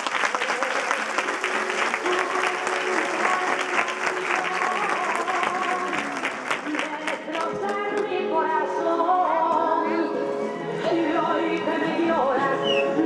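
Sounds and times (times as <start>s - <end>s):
audience applauding: 0.0s - 7.8s
quiet music: 1.2s - 13.0s.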